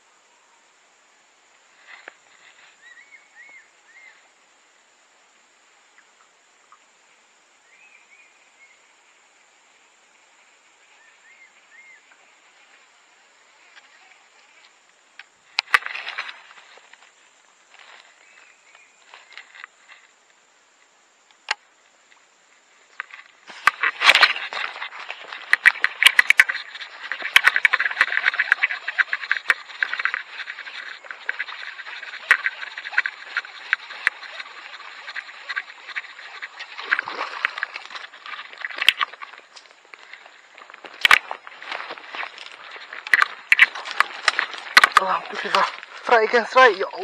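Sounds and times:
fishing reel clicking and scraping: 0:23.0 - 0:39.4.

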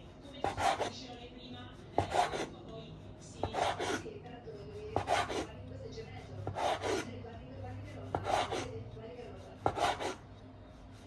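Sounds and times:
rasping scrapes on hard surface: 0:00.0 - 0:01.1, 0:01.8 - 0:02.6, 0:03.2 - 0:07.2, 0:08.0 - 0:10.2.

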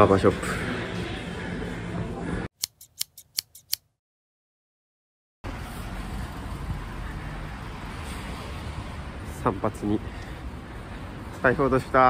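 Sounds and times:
street traffic noise: 0:00.0 - 0:03.8, 0:05.4 - 0:12.0
scissors snipping: 0:02.6 - 0:03.9.

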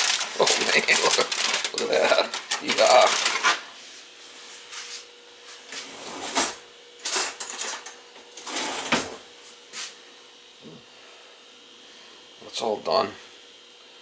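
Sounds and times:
kitchen utensils scraping and clattering: 0:00.0 - 0:03.6, 0:05.7 - 0:09.2
faint steady hum: 0:00.0 - 0:14.0.

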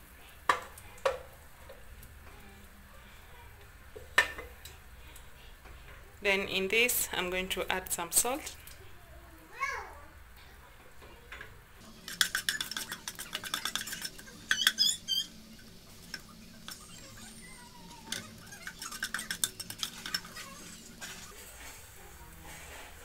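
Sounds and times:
wooden spatula scraping pot: 0:11.9 - 0:23.0
short squeaks: 0:14.5 - 0:15.4.

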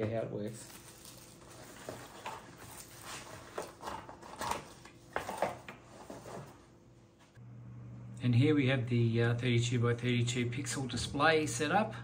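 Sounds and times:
packaging rustling: 0:00.5 - 0:06.5.

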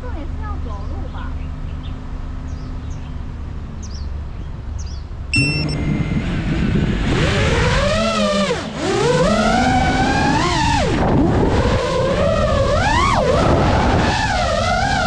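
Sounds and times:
low hum: 0:00.0 - 0:15.0
birds chirping faintly: 0:00.1 - 0:05.8
drone motors whining: 0:05.4 - 0:15.0.

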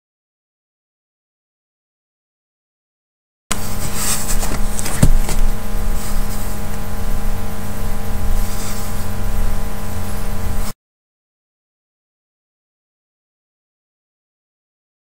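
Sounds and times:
electrical buzzing hum: 0:03.5 - 0:10.8
camera handling knocks: 0:04.3 - 0:05.5.

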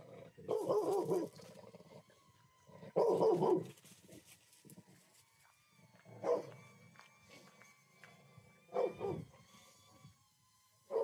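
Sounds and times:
dog barking: 0:00.5 - 0:01.3, 0:03.0 - 0:03.7, 0:06.2 - 0:06.5, 0:08.7 - 0:09.2.

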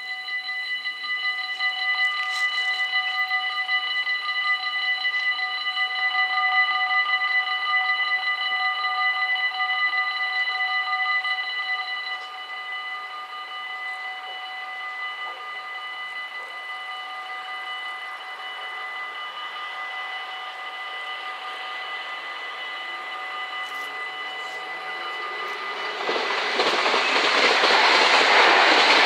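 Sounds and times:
level crossing bells ringing: 0:00.0 - 0:04.4, 0:13.7 - 0:29.0
train approaching: 0:00.0 - 0:29.0.

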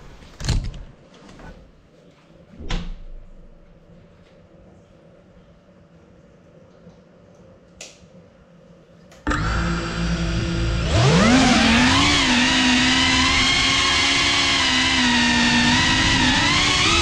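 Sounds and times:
drone propellers whining: 0:09.3 - 0:17.0.

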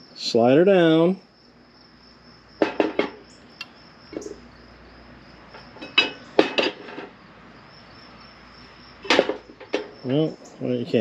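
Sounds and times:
metal clinking and knocking: 0:02.6 - 0:03.3, 0:04.1 - 0:04.4, 0:05.5 - 0:07.2, 0:09.0 - 0:10.2.

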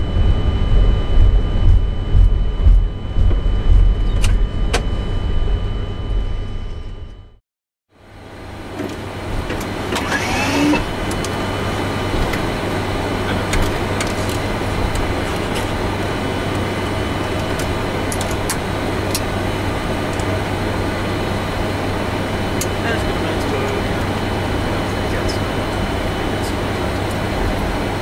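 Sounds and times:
aircraft cockpit hum and rush: 0:00.0 - 0:28.0
brief whine: 0:09.9 - 0:11.6.

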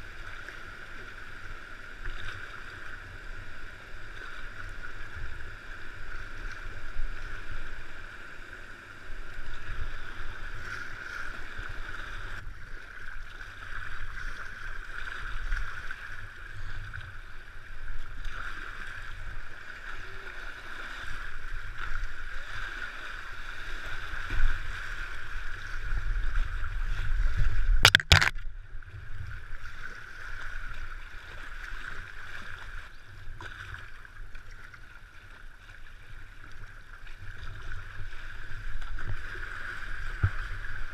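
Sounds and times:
sharp knock: 0:27.8 - 0:28.3.

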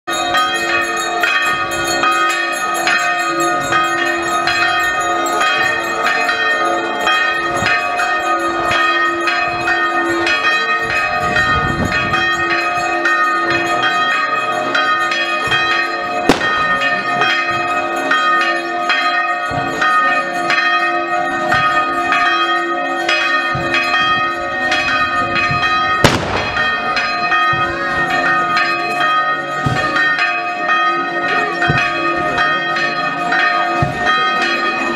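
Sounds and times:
church bells ringing: 0:00.1 - 0:34.9
sharp bangs: 0:16.3 - 0:16.8, 0:26.0 - 0:27.0.

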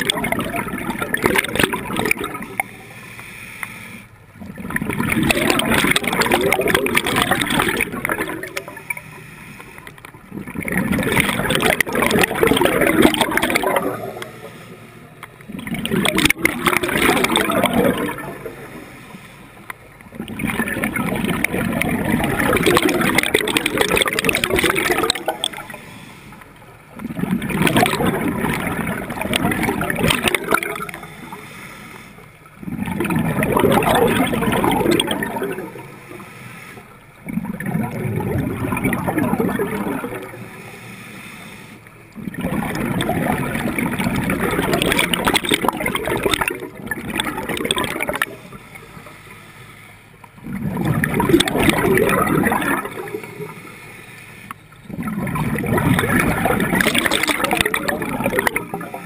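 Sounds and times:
bubbles gurgling: 0:00.0 - 0:03.0, 0:04.3 - 0:19.1, 0:19.7 - 0:26.0, 0:26.6 - 0:31.6, 0:32.4 - 0:36.2, 0:36.9 - 0:40.7, 0:42.0 - 0:49.2, 0:50.2 - 0:53.8, 0:54.6 - 0:59.0
diver breathing through regulator: 0:02.7 - 0:04.2, 0:08.1 - 0:10.1, 0:25.5 - 0:26.4, 0:30.8 - 0:32.4, 0:35.8 - 0:37.0, 0:40.4 - 0:41.9, 0:48.4 - 0:50.2, 0:53.1 - 0:54.7.

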